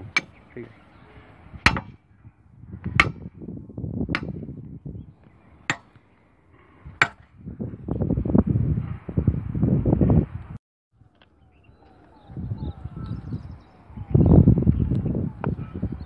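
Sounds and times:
hammer striking rail fittings: 0.0s - 0.4s, 1.7s - 2.0s, 5.7s - 6.0s
wind rumble on microphone: 0.0s - 16.0s.

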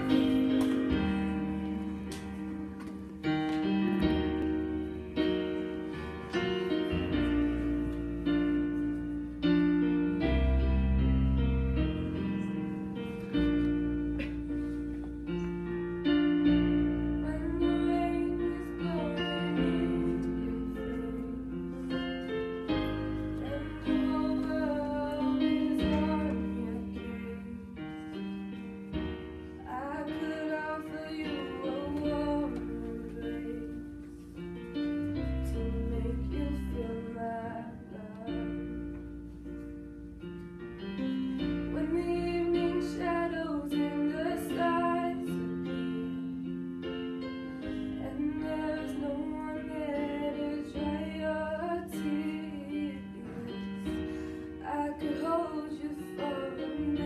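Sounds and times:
young woman singing: 16.1s - 29.0s, 29.6s - 38.9s, 41.4s - 46.6s, 47.7s - 57.0s.

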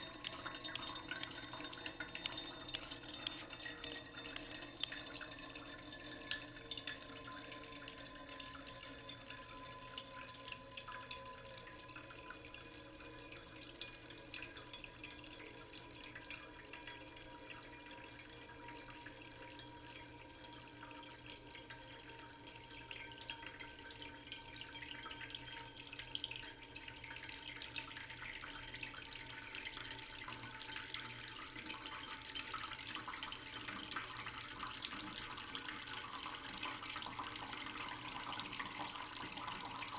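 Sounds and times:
water dripping and splashing: 0.0s - 8.8s, 29.2s - 39.9s.

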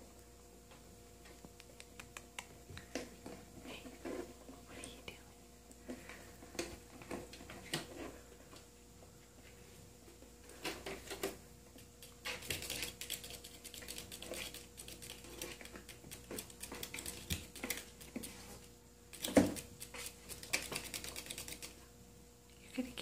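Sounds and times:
kitten claws scratching post: 11.9s - 18.5s, 19.1s - 21.8s.

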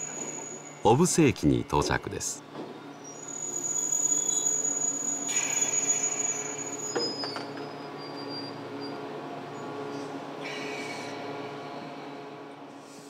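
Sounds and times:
squeal from wheels and brakes: 0.0s - 0.8s, 2.6s - 12.2s
electric train pulling into station: 0.0s - 13.0s.

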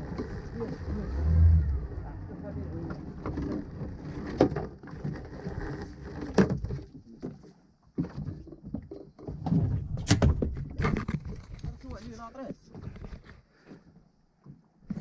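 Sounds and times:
water against boat hull: 2.7s - 13.3s
knocks and bumps in boat: 2.8s - 11.9s.

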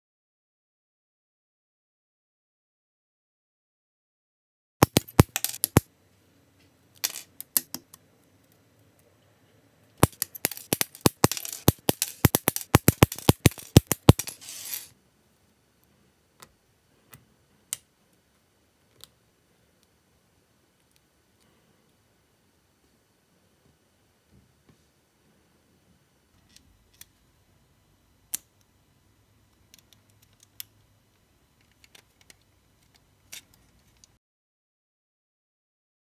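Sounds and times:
plastic parts clicking: 10.0s - 14.4s.

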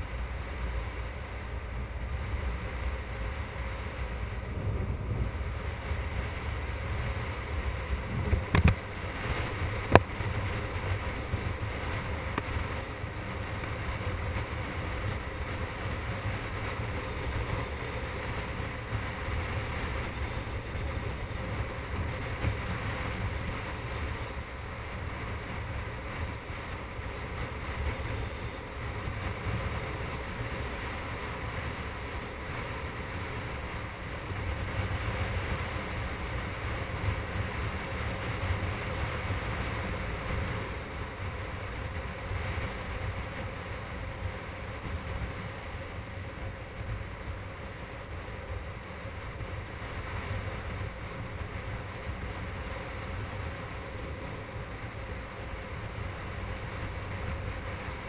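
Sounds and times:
road noise: 0.0s - 58.0s
wind rumbling on microphone: 0.0s - 58.0s.

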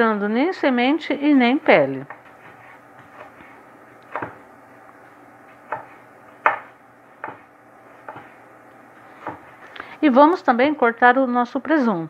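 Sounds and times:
knife chopping on wooden board: 2.0s - 4.4s, 5.6s - 8.4s, 9.1s - 9.6s.

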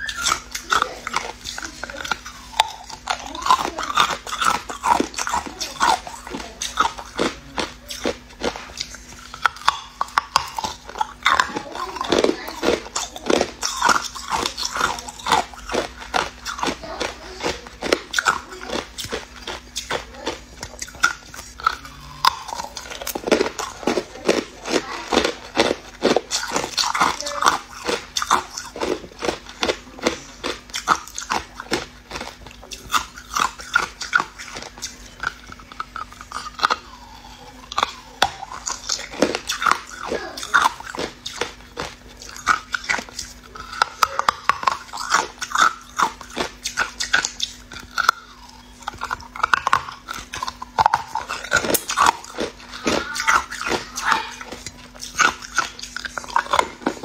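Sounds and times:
ice crunching between teeth: 0.0s - 57.0s.

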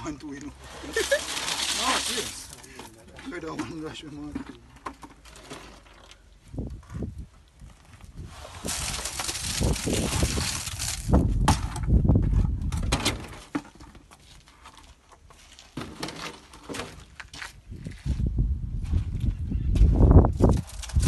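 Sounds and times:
gravelly concrete pouring: 0.0s - 18.2s, 20.2s - 21.0s
knocks and scrapes in concrete: 0.3s - 21.0s.

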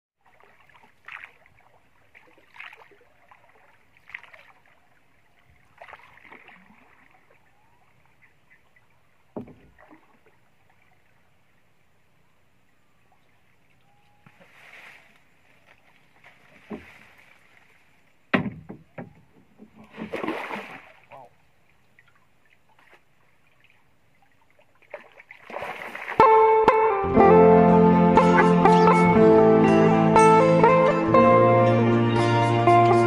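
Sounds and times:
paddle splashing through water: 0.2s - 7.6s, 14.3s - 18.7s, 19.6s - 21.2s, 21.8s - 26.5s.

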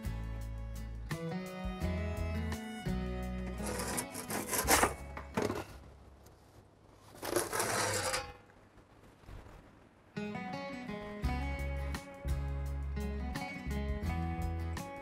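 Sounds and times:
metal peel scraping stone: 3.4s - 5.8s, 7.1s - 8.5s.

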